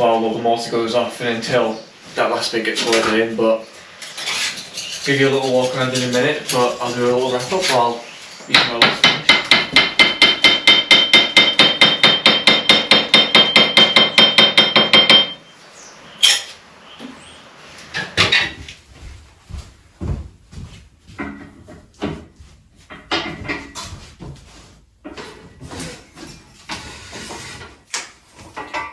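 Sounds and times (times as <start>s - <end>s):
hammer striking metal: 8.5s - 15.4s
light knocks and clatters: 20.0s - 26.8s.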